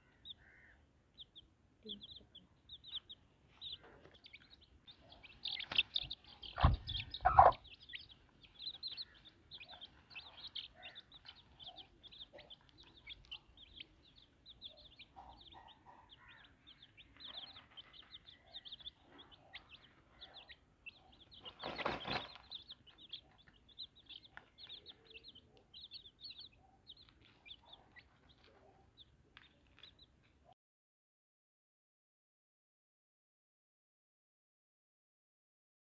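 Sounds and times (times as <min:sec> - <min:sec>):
chicks peeping: 0:00.0 - 0:30.3
hen clucking: 0:02.9 - 0:13.9.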